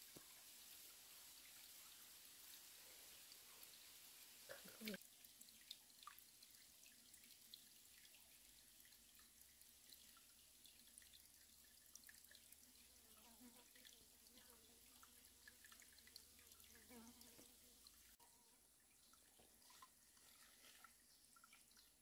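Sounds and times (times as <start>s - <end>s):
stream water trickling: 0.0s - 22.0s
small water ticks: 4.5s - 22.0s.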